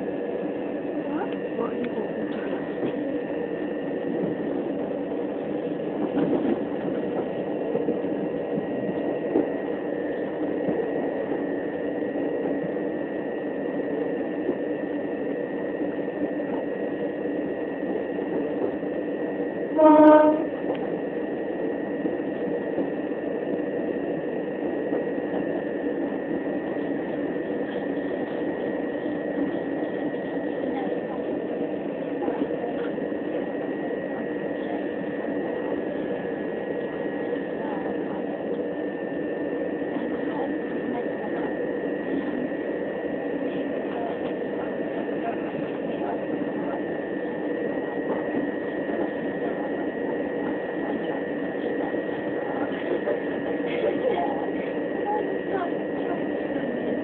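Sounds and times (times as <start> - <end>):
train running rumble: 0.0 - 57.0
train horn blast: 19.7 - 20.6.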